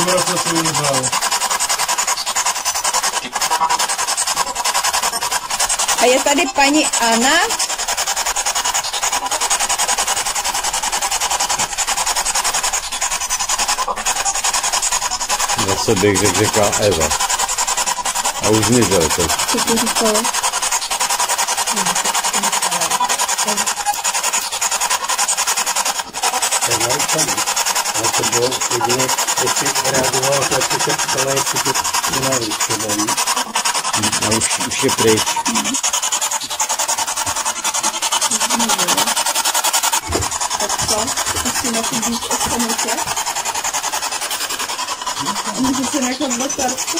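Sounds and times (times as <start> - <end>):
radio static pulses chattering: 0.0 - 46.9
snatches of radio voices: 15.4 - 17.4, 18.3 - 20.3, 26.6 - 33.3, 33.9 - 35.8.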